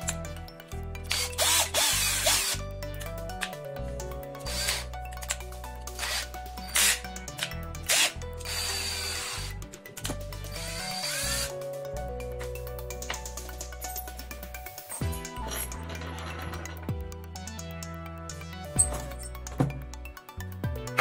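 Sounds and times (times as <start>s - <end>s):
background music: 0.0s - 21.0s
cordless drill motor bursts: 1.0s - 2.6s, 4.4s - 4.9s, 6.0s - 7.0s, 7.8s - 9.6s, 10.5s - 11.6s
hands working drill chuck: 1.0s - 3.6s, 4.4s - 11.6s.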